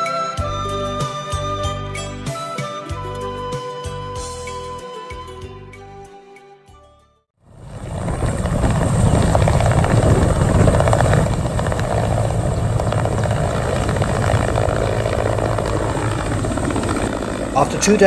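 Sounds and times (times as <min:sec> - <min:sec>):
helicopter rotor chop: 0:07.5 - 0:18.0
helicopter turbine engines: 0:07.5 - 0:18.0.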